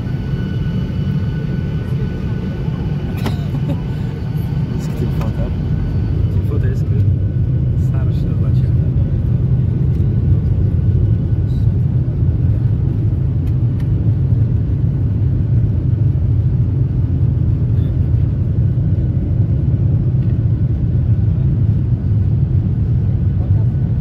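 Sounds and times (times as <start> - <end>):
airliner cabin rumble: 0.0 - 24.0.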